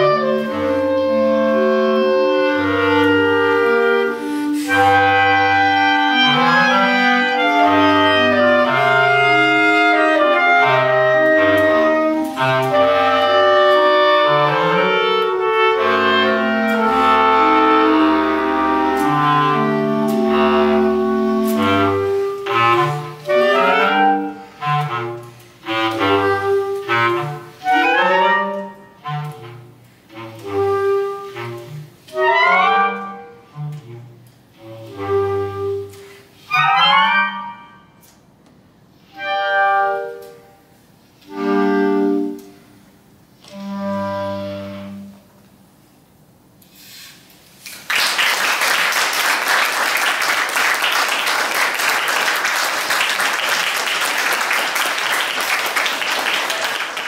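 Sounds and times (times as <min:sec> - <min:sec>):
clarinet quartet playing: 0:00.0 - 0:38.2, 0:38.8 - 0:45.4
audience applause: 0:47.8 - 0:57.0.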